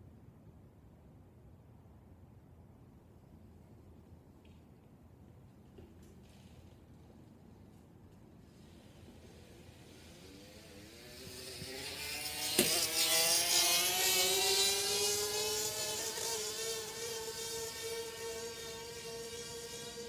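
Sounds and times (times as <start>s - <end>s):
small engine buzzing past: 8.5s - 20.0s.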